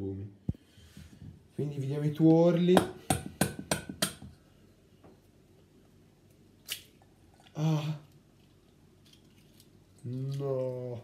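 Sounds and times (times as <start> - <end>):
person wordless vocal sound: 7.5 - 8.1.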